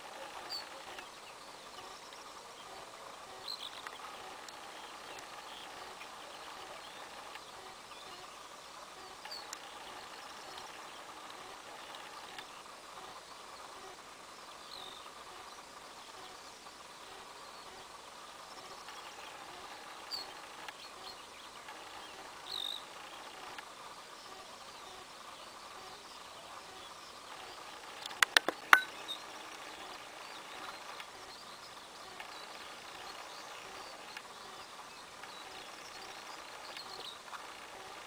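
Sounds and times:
short high bird chirps: 0:28.2 - 0:28.9.

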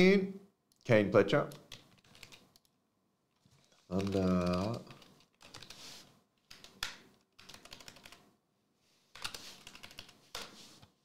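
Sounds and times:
computer keyboard typing: 0:01.5 - 0:02.7, 0:03.9 - 0:05.8, 0:06.4 - 0:08.2, 0:09.2 - 0:10.5.

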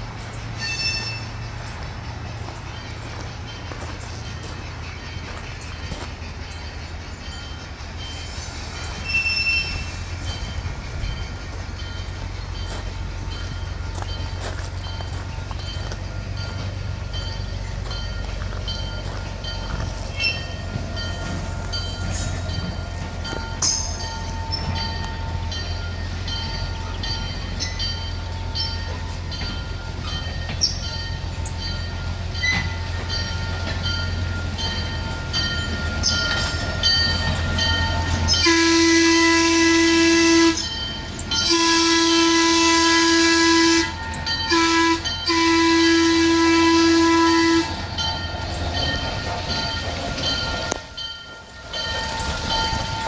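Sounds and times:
train rumbling: 0:00.0 - 0:53.0
train whistle blasts: 0:08.7 - 0:10.1, 0:38.2 - 0:40.7, 0:41.4 - 0:48.0.

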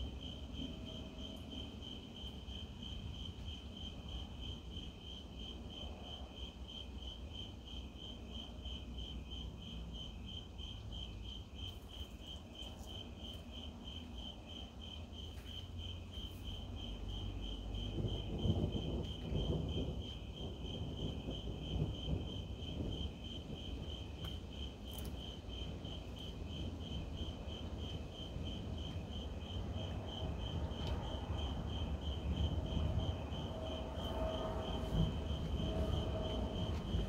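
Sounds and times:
crickets chirping: 0:00.0 - 0:37.0
distant thunder rumble: 0:16.1 - 0:24.8, 0:25.4 - 0:37.0.

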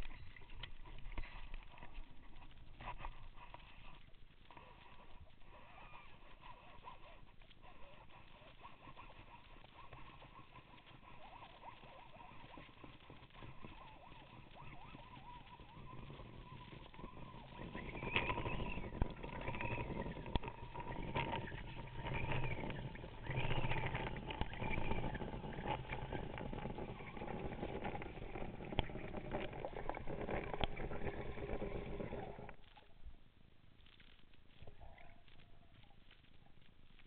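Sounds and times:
faint steady hum: 0:00.0 - 0:37.0
water rushing underwater: 0:12.6 - 0:32.8.

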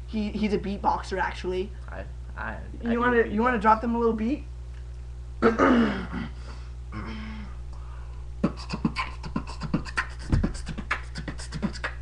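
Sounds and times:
beatboxing: 0:08.4 - 0:12.0.

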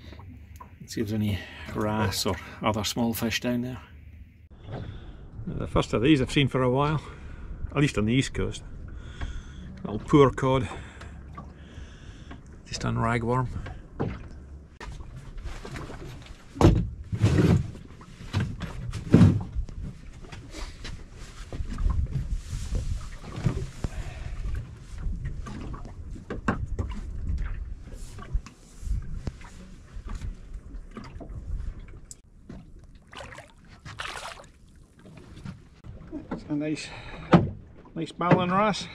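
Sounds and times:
water lapping against hull: 0:00.0 - 0:38.9.

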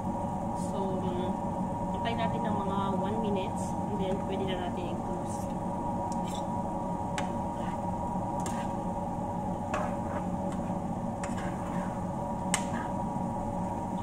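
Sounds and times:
steady hum: 0:00.0 - 0:14.0
metal spoon scraping a pan: 0:11.2 - 0:12.0.

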